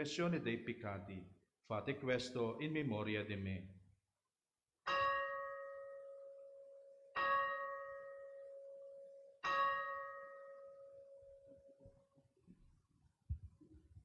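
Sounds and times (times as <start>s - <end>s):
altar bell ringing: 4.9s - 11.8s.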